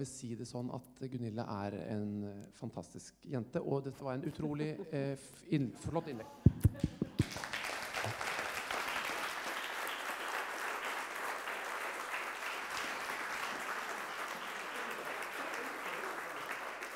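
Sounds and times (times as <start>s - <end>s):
audience clapping: 6.5s - 16.9s.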